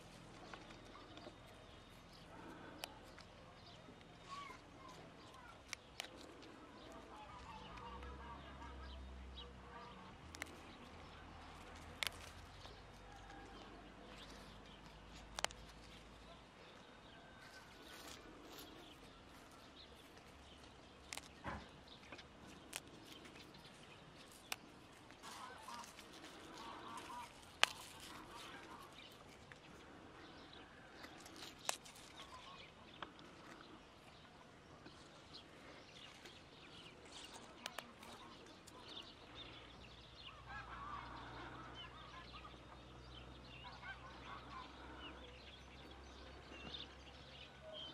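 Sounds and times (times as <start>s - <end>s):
soft leafy rustling: 0.0s - 47.9s
leaves and stems snapping: 0.1s - 8.0s, 10.0s - 33.8s, 35.6s - 39.6s.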